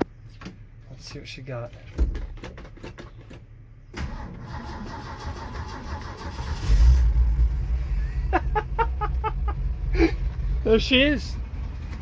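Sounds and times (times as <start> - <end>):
engine cranking and starting: 4.0 - 7.6.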